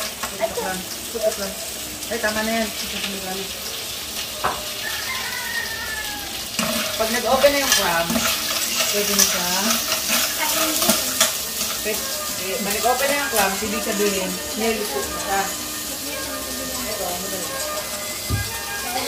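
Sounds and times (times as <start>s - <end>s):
food sizzling in a wok: 0.0s - 19.0s
metal spoon scraping a pan: 6.5s - 19.0s.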